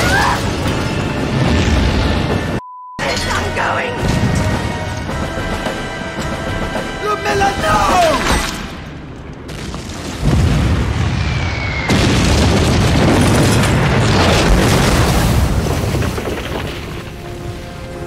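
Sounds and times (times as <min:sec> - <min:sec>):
aerial bombs exploding: 0:09.5 - 0:17.2.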